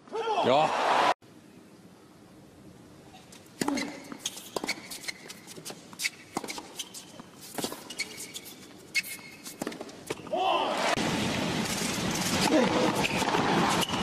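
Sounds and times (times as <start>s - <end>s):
shoes squeaking on court: 3.2s - 10.3s, 12.3s - 14.0s
rackets hitting tennis ball: 3.6s - 10.3s, 11.7s - 14.0s.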